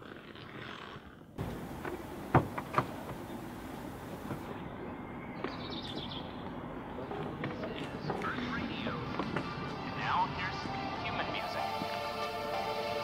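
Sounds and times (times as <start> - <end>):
outdoor background hiss: 1.4 - 5.2, 9.5 - 13.0.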